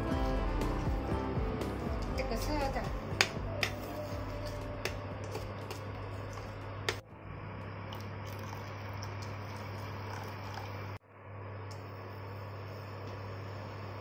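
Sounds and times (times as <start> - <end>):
water pouring into puree: 7.8 - 11.0.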